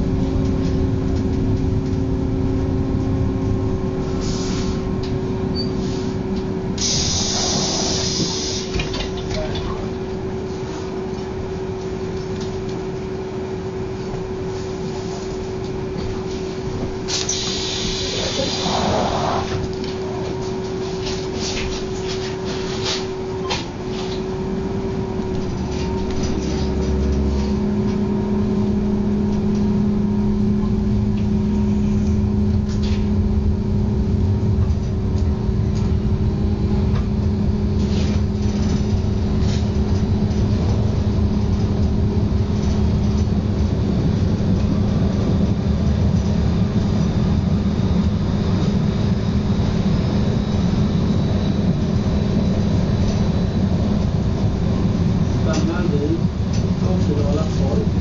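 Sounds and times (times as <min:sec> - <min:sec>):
rumble of train wheels: 0:00.0 - 0:58.0
train motor hum: 0:00.0 - 0:58.0.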